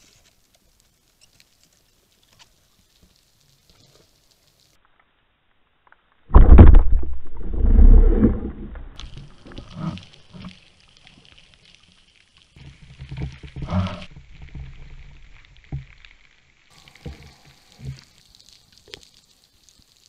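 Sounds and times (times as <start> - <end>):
underwater water rushing: 6.3 - 10.4.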